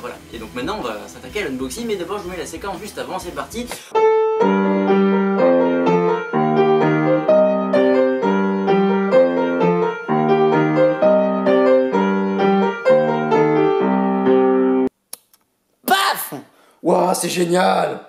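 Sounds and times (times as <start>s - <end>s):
upright piano broken chords: 3.9s - 14.9s.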